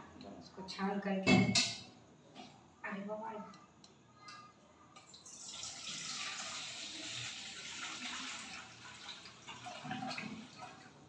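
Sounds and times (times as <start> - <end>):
milk pouring into steel bowl: 5.1 - 10.8.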